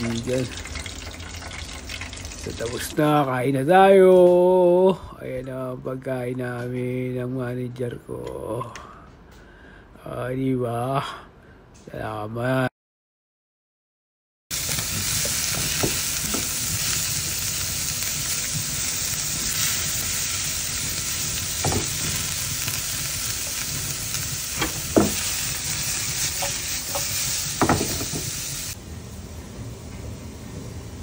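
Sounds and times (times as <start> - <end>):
food sizzling in frying pan: 0.0 - 3.3, 14.5 - 28.8.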